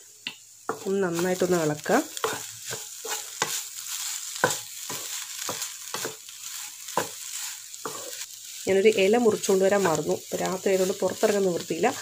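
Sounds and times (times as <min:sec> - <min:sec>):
wooden spatula scraping a pan: 0:00.7 - 0:08.3.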